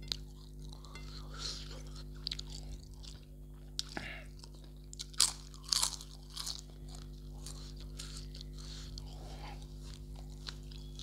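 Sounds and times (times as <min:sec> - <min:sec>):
man chewing food: 0:00.0 - 0:11.0
crunchy bites: 0:03.8 - 0:09.2.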